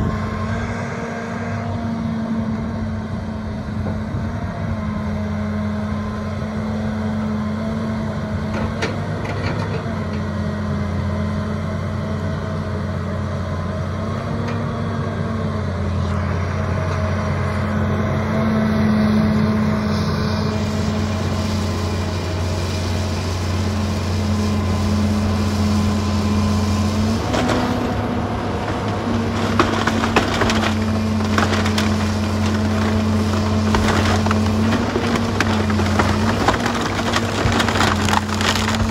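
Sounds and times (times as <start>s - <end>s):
excavator diesel engine running: 0.0s - 38.9s
wooden timbers cracking and splintering: 27.0s - 38.9s.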